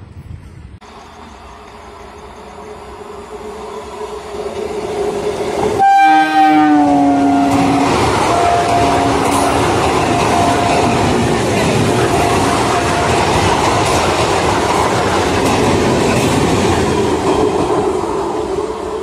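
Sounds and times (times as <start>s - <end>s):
electric train running: 0.8s - 19.0s
train horn blasts: 5.7s - 13.5s.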